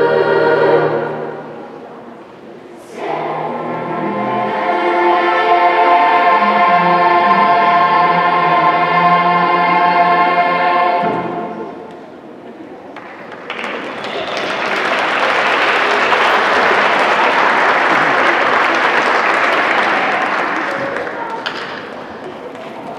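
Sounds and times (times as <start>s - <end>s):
youth choir singing: 0.0s - 1.6s, 2.8s - 11.9s
audience applause: 13.0s - 22.2s.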